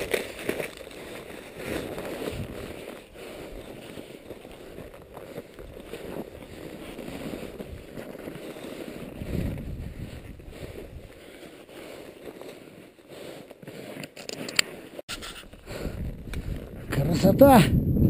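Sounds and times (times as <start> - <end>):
wind rumbling on microphone: 0.0 - 11.4, 15.1 - 18.0
clothing rustling: 0.0 - 15.1
snow crunching: 0.0 - 16.8.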